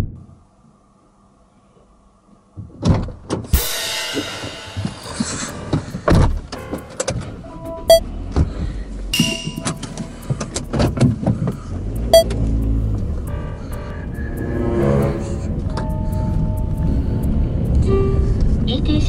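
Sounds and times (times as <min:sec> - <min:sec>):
car engine starting and rumbling: 0:04.5 - 0:19.0
short beeps: 0:07.5 - 0:08.1, 0:09.2 - 0:09.9, 0:12.1 - 0:12.3.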